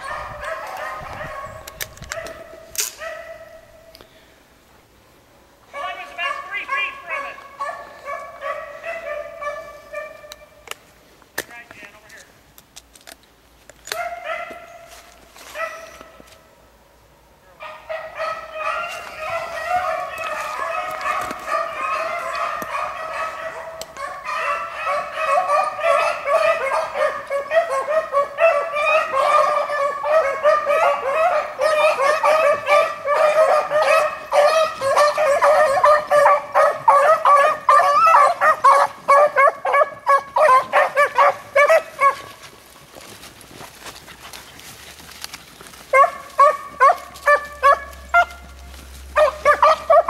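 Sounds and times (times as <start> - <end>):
beagles baying: 17.6 - 42.6, 45.9 - 50.0.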